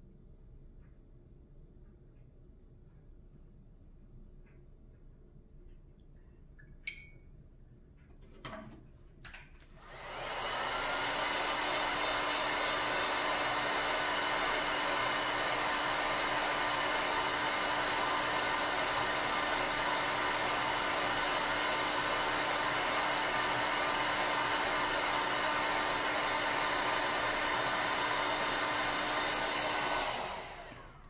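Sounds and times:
heat gun blowing air: 9.8 - 31.0.

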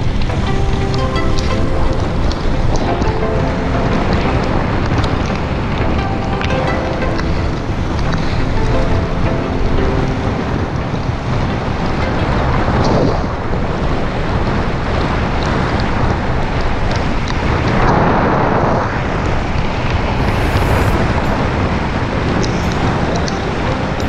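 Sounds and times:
wind on microphone: 0.0 - 24.0.

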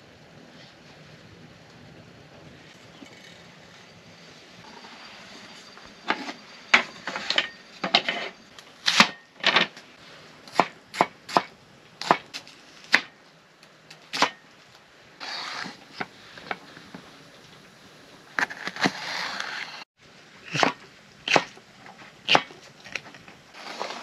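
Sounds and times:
knife scraping board: 6.0 - 9.2, 15.2 - 16.6, 18.4 - 19.8, 23.6 - 24.0.

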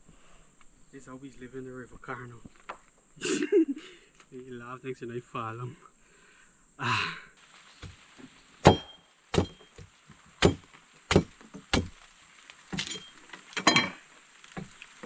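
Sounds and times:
machete chopping coconut husk: 8.6 - 12.0.

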